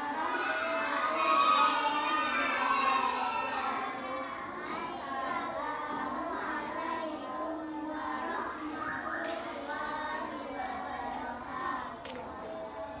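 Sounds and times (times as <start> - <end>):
children chanting in unison: 0.0 - 13.0.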